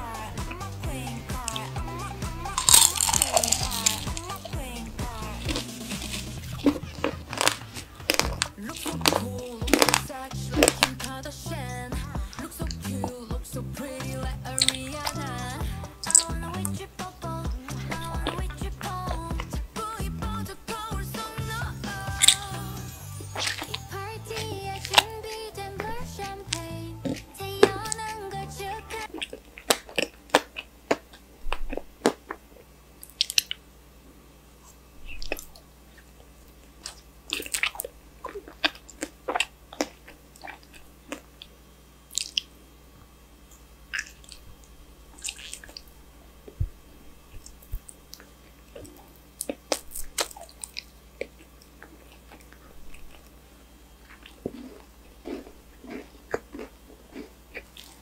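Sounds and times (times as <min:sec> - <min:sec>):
chewing and crunching: 0:00.0 - 0:13.4, 0:14.0 - 0:22.6, 0:23.2 - 0:33.6, 0:34.6 - 0:42.6, 0:43.5 - 0:58.0
wet mouth clicks: 0:02.6 - 0:04.4, 0:16.0 - 0:16.4, 0:22.2 - 0:22.5, 0:42.1 - 0:42.5.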